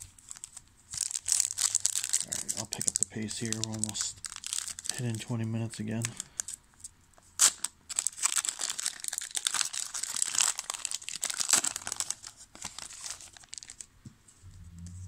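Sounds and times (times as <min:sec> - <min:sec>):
foil wrapper tearing: 0:00.2 - 0:05.2, 0:07.4 - 0:13.9
foil crackling: 0:07.6 - 0:13.9.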